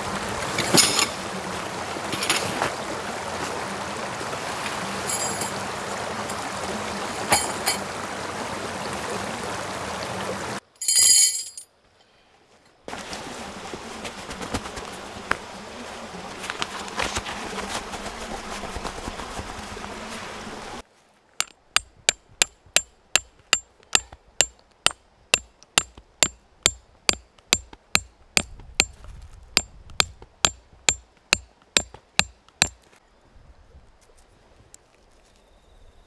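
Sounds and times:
tent stake hammered into ground: 21.4s - 29.0s, 29.6s - 32.9s.

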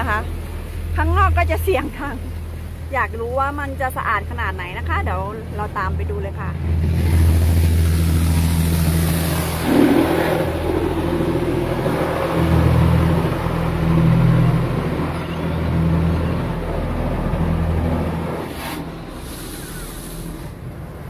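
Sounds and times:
car wash machinery humming: 0.0s - 21.0s
water spraying on car: 6.9s - 14.4s, 17.6s - 21.0s.

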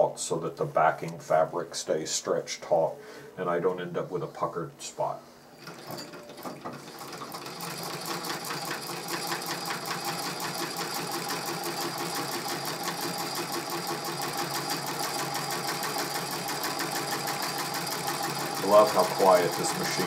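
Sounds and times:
treadle sewing machine stitching: 5.6s - 20.0s.

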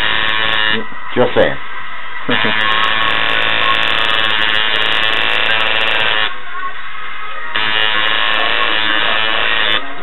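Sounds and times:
tattoo machine buzzing: 0.0s - 0.8s, 2.3s - 6.4s, 7.5s - 9.9s.

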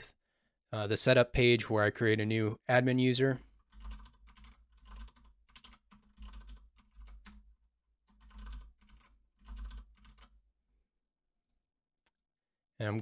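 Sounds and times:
computer keyboard typing: 3.4s - 7.5s, 8.1s - 10.4s.

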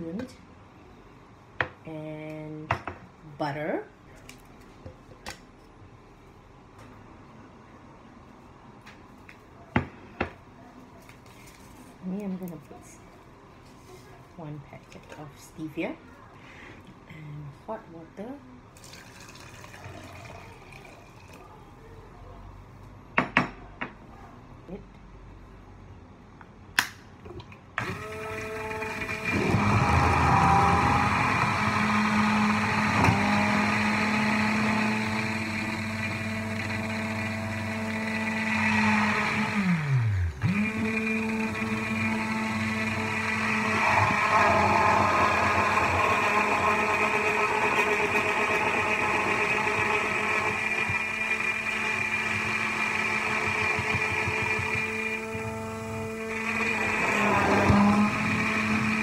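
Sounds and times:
immersion blender whirring: 27.8s - 59.0s.

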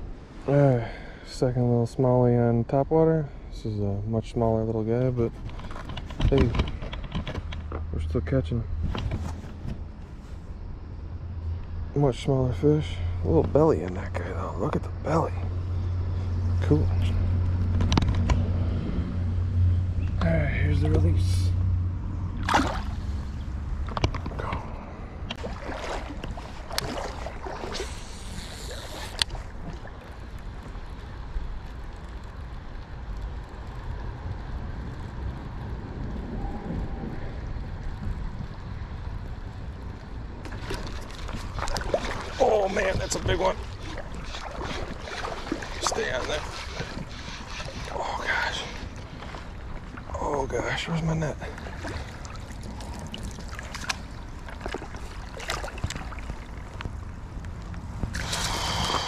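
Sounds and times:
wind buffeting microphone: 21.6s - 50.8s, 51.4s - 59.0s
fish thrashing and splashing: 22.4s - 23.3s, 24.3s - 30.6s, 40.5s - 50.1s, 51.4s - 57.1s, 57.7s - 59.0s
creek water hiss: 25.5s - 31.2s, 41.3s - 54.1s, 58.0s - 59.0s.

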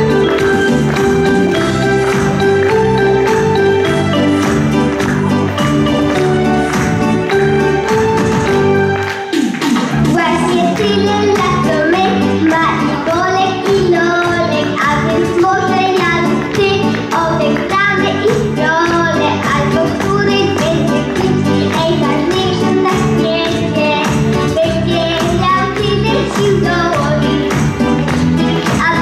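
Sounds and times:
instrumental music with steady beat: 0.0s - 17.9s
boy singing into microphone: 10.1s - 27.4s, 28.6s - 29.0s.

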